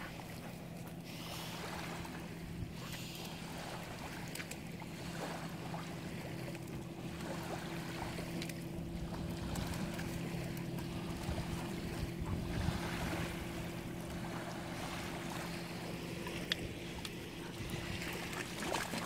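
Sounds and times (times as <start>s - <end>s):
lapping water: 0.0s - 19.0s
low motor drone: 0.0s - 19.0s
wind: 0.0s - 19.0s
dog splashing in shallows: 7.0s - 19.0s.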